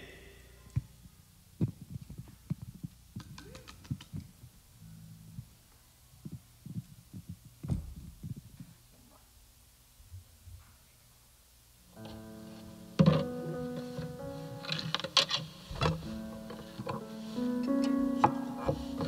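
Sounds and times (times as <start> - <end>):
microphone handling thumps: 6.2 - 8.7.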